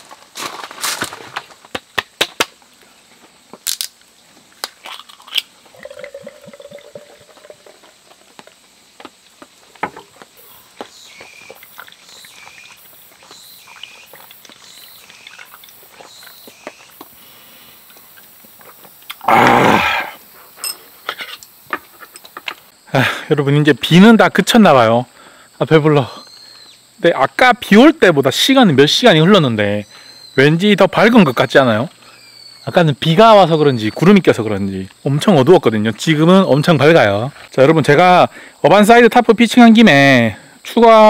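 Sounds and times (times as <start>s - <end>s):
cicadas calling: 0.0s - 41.0s
short loud vocal sound: 19.2s - 20.2s.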